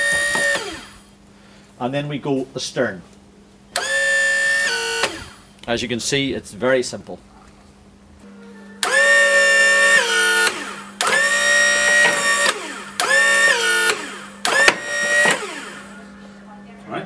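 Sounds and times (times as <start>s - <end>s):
hydraulic pump whine: 0.0s - 1.2s, 3.7s - 5.6s, 8.3s - 16.4s.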